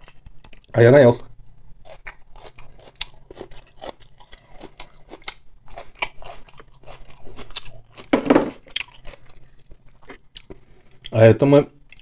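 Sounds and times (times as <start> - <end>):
person chewing food: 1.8 - 11.2.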